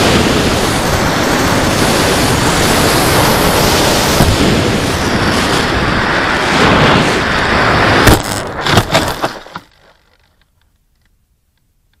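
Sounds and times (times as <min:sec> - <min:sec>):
rushing wind: 0:00.0 - 0:10.2
scraping knocks on dirt: 0:08.0 - 0:10.7.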